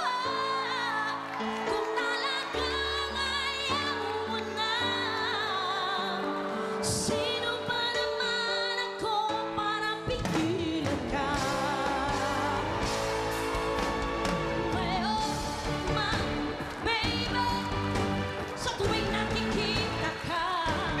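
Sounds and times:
woman singing pop ballad: 0.0s - 21.0s
drums and cymbals: 10.3s - 16.6s
bass guitar: 10.8s - 21.0s.

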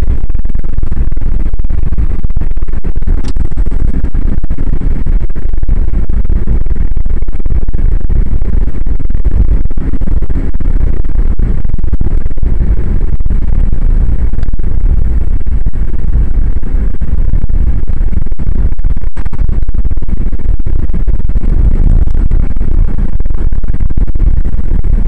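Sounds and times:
wind and road noise rumble: 0.0s - 25.0s.

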